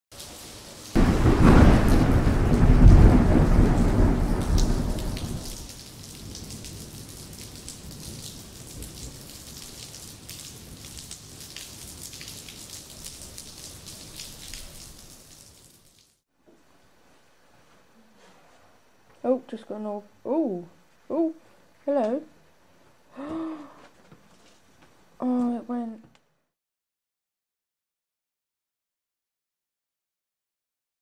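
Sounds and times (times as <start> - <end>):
rain pattering: 0.1 - 16.2
thunder rumble: 1.0 - 5.7.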